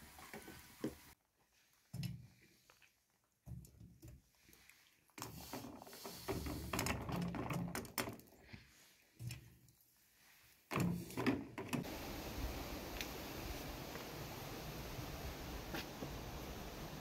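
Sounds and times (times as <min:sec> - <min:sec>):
steady outdoor hiss: 0:00.0 - 0:01.2, 0:11.8 - 0:17.0.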